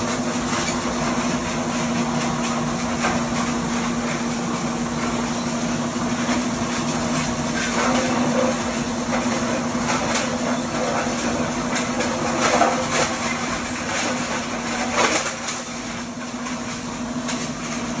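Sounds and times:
plastic shredder humming: 0.0s - 18.0s.

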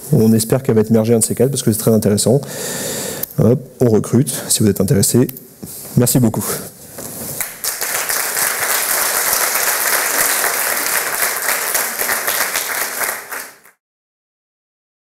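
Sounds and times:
audience applauding: 7.4s - 13.8s.

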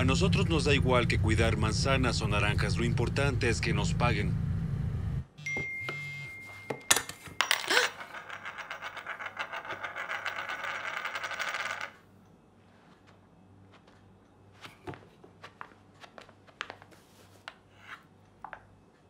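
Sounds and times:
ring hitting hard floor: 6.7s - 12.0s
ring spinning and rattling: 7.4s - 12.0s.

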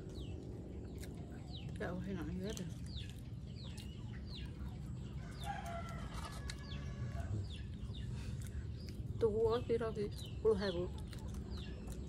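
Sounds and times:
chickens clucking: 0.0s - 12.0s
low background rumble: 0.0s - 12.0s
rooster crowing: 5.2s - 7.5s.

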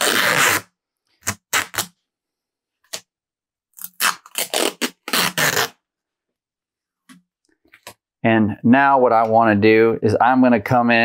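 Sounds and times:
masking tape ripping: 0.0s - 2.0s, 3.8s - 5.8s.

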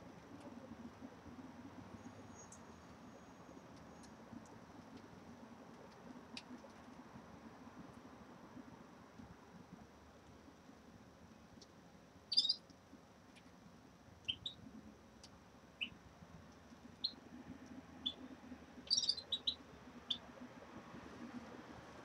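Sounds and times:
finches chirping: 12.3s - 12.6s, 14.3s - 14.6s, 17.0s - 17.2s, 18.0s - 20.2s.

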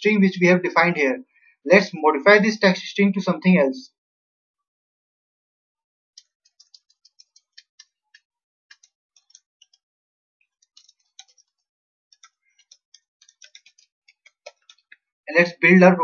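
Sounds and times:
keyboard typing: 6.2s - 9.8s, 10.4s - 15.0s.

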